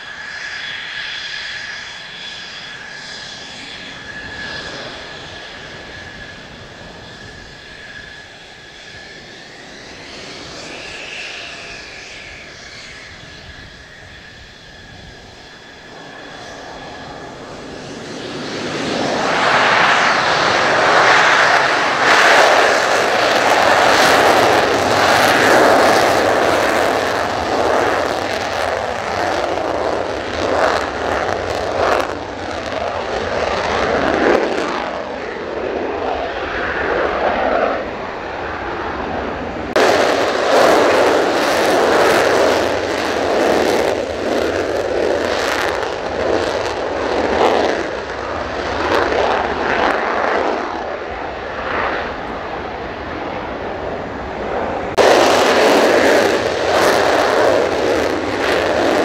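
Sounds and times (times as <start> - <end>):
jet engine roaring with crackle: 0.0 - 59.0.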